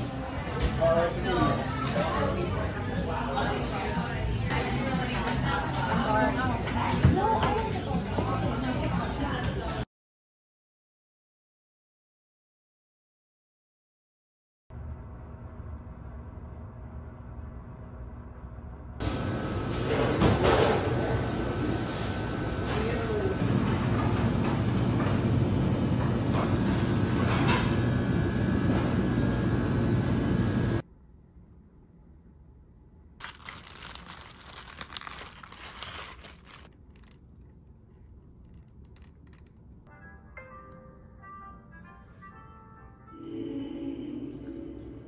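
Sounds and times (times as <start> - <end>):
indoor shop ambience: 0.0 - 9.9, 14.7 - 45.0
paper wrapper crinkling: 33.2 - 39.8.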